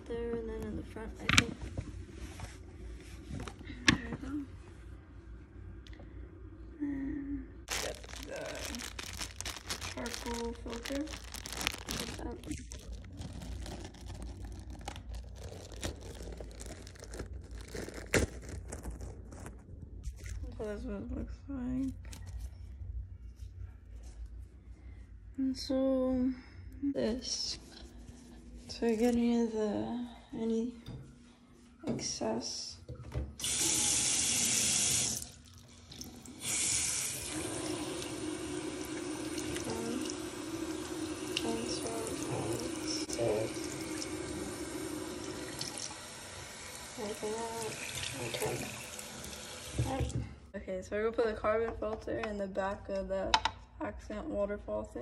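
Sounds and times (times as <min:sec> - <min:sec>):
plastic wrapping crinkling and tearing: 0:07.7 - 0:20.5
faucet water running into basin: 0:33.4 - 0:50.2.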